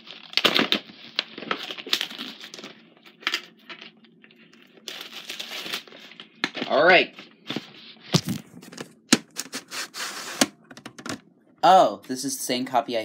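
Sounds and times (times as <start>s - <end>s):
crinkling rustles: 0.0s - 11.2s
plastic case clicks and knocks: 10.6s - 11.2s.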